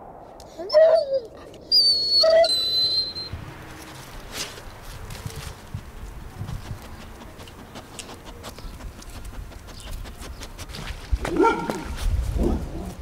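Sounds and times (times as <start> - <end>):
dog whining: 0.6 - 3.4
dog digging in soil: 3.6 - 13.0.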